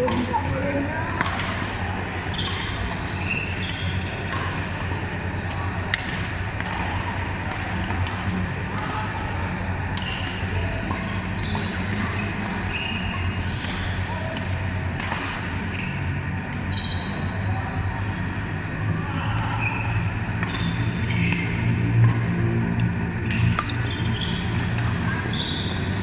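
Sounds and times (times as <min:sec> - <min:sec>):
rackets hitting shuttlecock: 0:00.0 - 0:02.9, 0:03.5 - 0:15.7, 0:19.2 - 0:26.0
shoes squeaking on court: 0:02.3 - 0:04.2, 0:11.0 - 0:14.0, 0:15.7 - 0:17.4, 0:19.6 - 0:22.0, 0:23.2 - 0:26.0.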